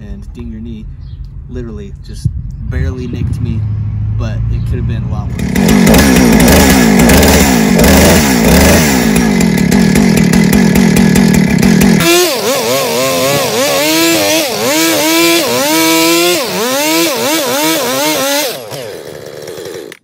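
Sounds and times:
chainsaw cutting wood: 5.3s - 20.0s.

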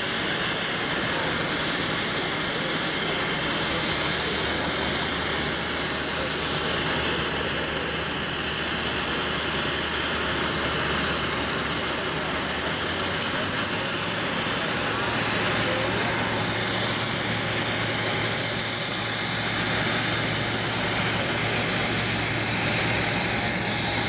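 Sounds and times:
jet engines running: 0.0s - 24.0s.

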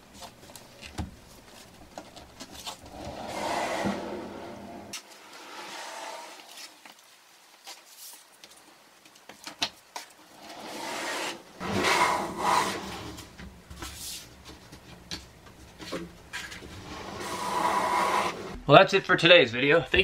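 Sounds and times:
wooden door sliding on track: 2.9s - 6.4s, 10.4s - 13.4s, 16.6s - 18.6s.

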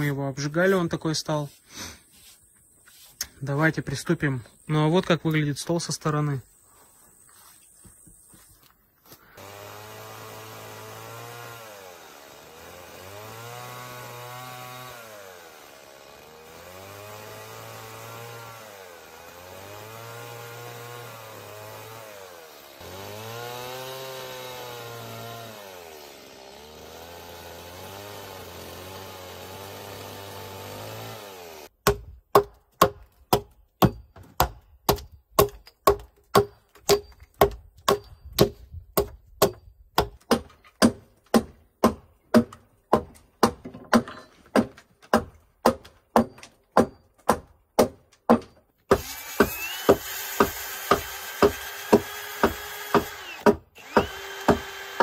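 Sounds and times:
chainsaw revving: 9.4s - 31.7s, 49.0s - 55.0s.

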